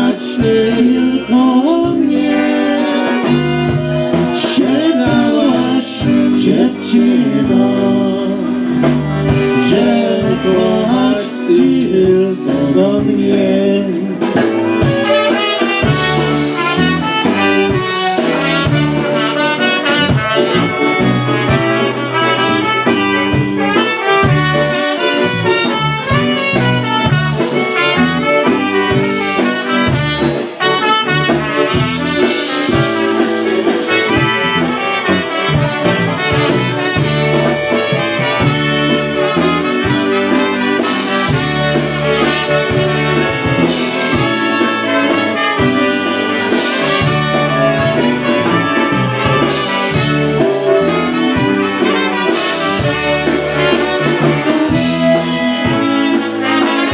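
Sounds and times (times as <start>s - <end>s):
electric bass: 0.0s - 56.9s
trumpets playing melody: 0.0s - 56.9s
steady beat: 14.2s - 56.9s.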